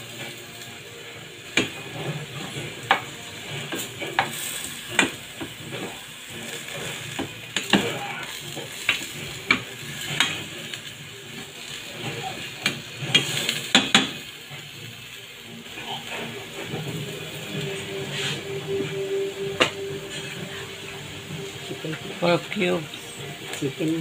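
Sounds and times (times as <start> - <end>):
vegetables sizzling in a metal pan: 0.0 - 24.0
spatula scraping and knocking pan: 1.5 - 10.8, 11.9 - 14.8.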